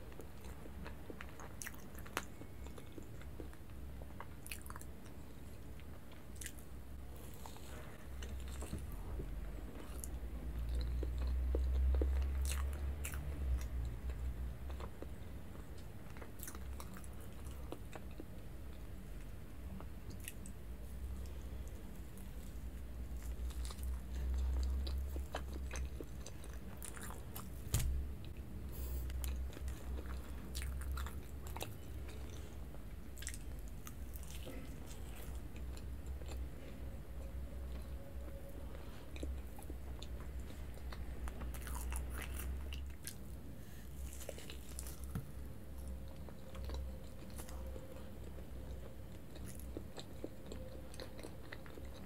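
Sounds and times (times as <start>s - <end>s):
person biting and chewing cake: 39.2s - 48.4s.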